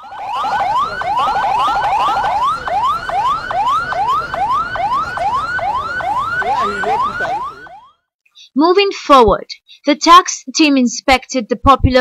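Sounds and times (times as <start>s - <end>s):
electronic siren yelping: 0.0s - 8.1s.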